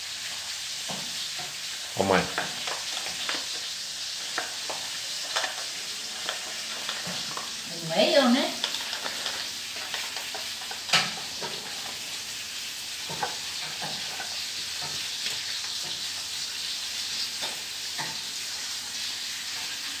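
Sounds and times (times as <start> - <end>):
dog crunching kibble: 2.3 - 7.7, 8.5 - 10.9
food clicking on plastic bowl: 8.6 - 11.1.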